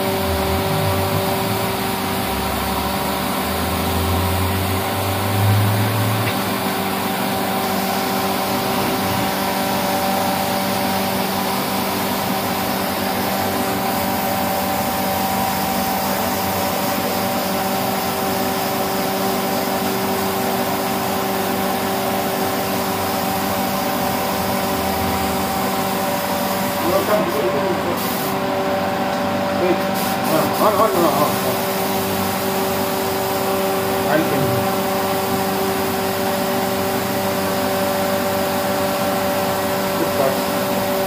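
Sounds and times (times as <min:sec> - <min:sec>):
machine hum: 0:00.0 - 0:07.6
compressed-air spray hiss: 0:00.3 - 0:28.4, 0:29.8 - 0:41.0.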